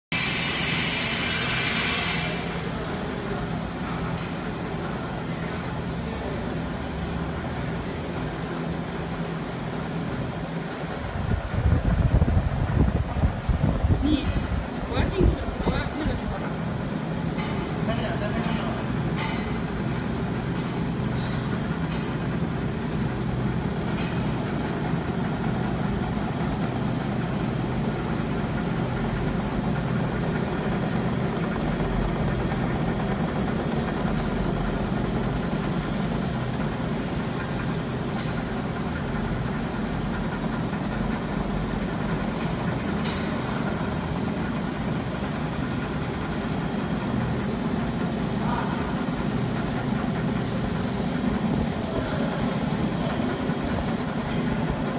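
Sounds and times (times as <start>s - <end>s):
winding machines humming: 0.1s - 54.9s.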